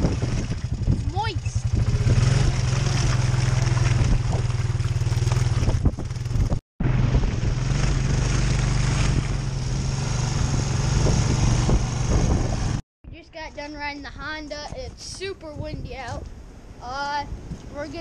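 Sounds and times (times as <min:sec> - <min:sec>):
quad bike engine running: 0:00.0 - 0:12.8
wind noise: 0:00.0 - 0:18.0.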